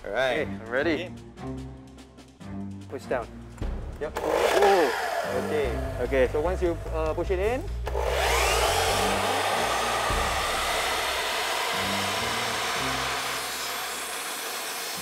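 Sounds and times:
saw blade cutting wood: 4.1s - 6.4s, 7.8s - 15.0s
miter saw whining: 4.2s - 7.0s, 7.8s - 15.0s.

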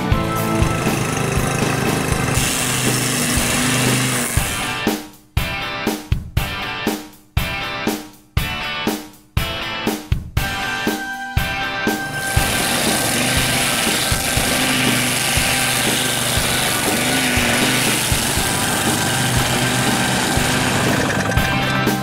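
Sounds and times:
string trimmer engine droning: 0.0s - 4.8s, 12.0s - 22.0s
nylon line cutting grass: 0.1s - 4.9s, 12.1s - 22.0s.

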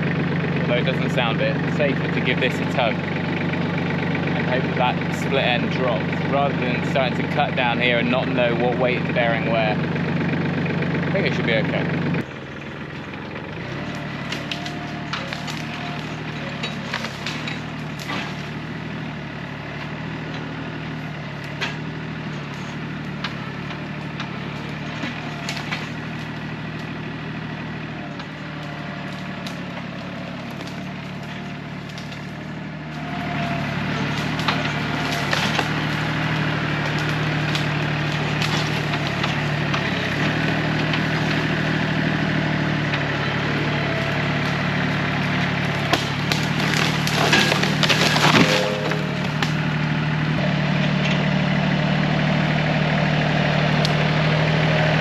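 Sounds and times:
tractor diesel engine under load: 0.0s - 55.0s
wood cracking and creaking: 12.9s - 51.3s.

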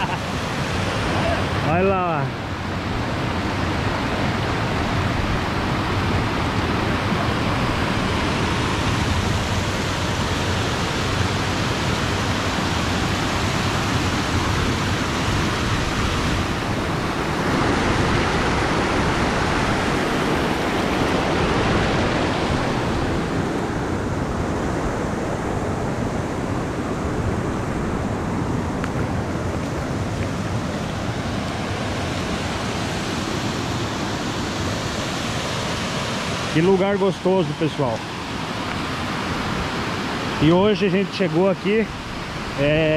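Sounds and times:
waterfall rushing: 0.0s - 42.9s.

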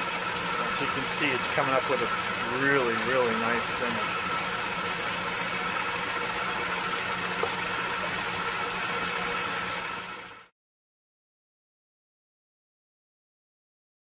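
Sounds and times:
metal lathe humming and whining: 0.0s - 10.5s.

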